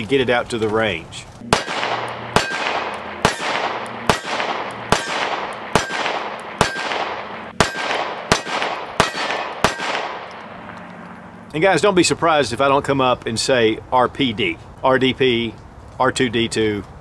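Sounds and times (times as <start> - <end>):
pistol shots with echo: 1.4 - 10.8.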